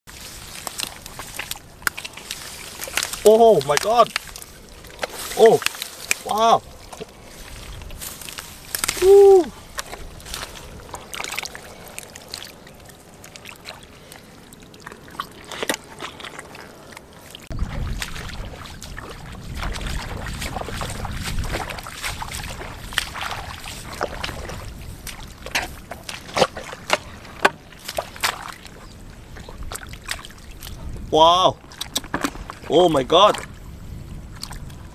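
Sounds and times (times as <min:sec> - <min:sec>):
shallow water sloshing: 0:00.1 - 0:34.9
wet mud squelching: 0:00.1 - 0:34.9
wet slaps and splashes: 0:00.5 - 0:07.1, 0:08.2 - 0:12.6, 0:17.7 - 0:28.8, 0:29.6 - 0:30.8.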